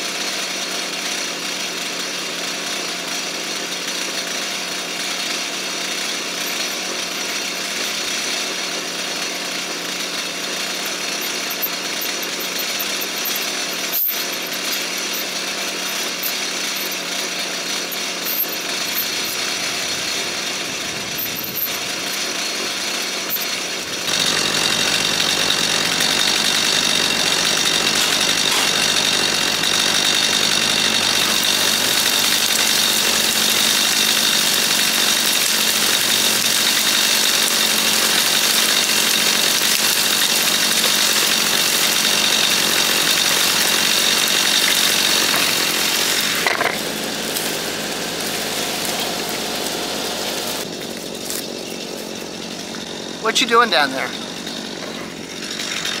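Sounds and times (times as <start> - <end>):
chainsaw cutting brush: 0.0 - 56.0.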